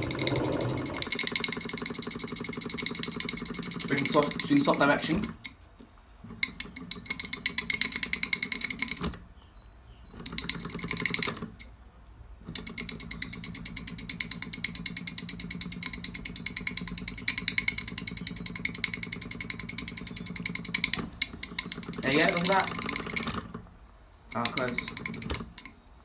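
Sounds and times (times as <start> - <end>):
model steam engine chuffing: 0.0 - 4.8.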